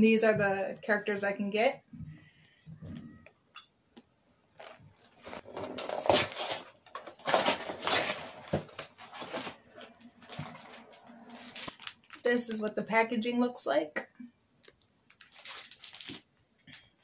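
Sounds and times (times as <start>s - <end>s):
cardboard box tearing open: 5.3s - 9.6s.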